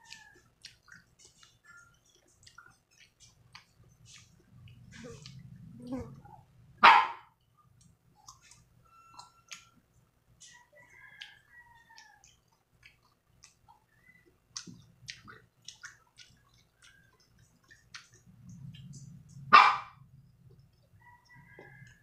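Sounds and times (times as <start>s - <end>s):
person eating clicks and smacks: 0.0s - 6.0s, 7.7s - 9.7s, 11.2s - 19.4s
dog barking: 6.8s - 7.3s, 19.5s - 20.0s.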